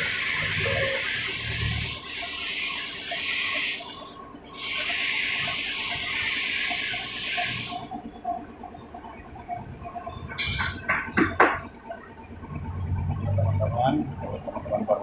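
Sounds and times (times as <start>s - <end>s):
loud high-pitched hiss: 0.0s - 7.9s.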